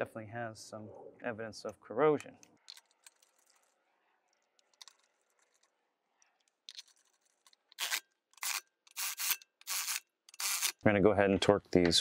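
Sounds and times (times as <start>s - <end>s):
hand ratchet clicking: 6.7s - 10.8s.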